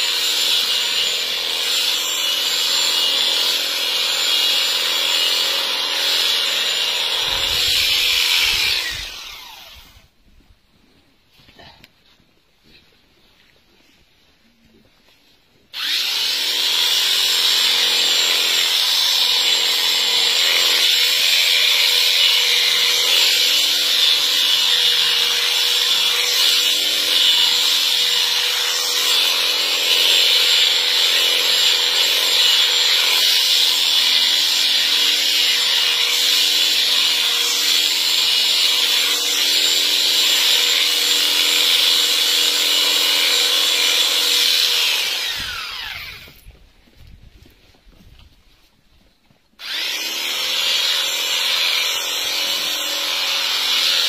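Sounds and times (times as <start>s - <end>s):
electric shears whining: 0.0s - 10.1s, 15.7s - 46.4s, 49.6s - 54.0s.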